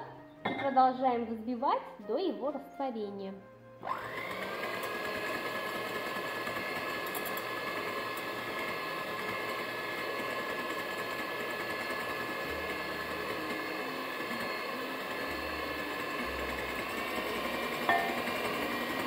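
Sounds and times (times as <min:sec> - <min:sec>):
electric hand mixer whisking: 0:03.8 - 0:19.0.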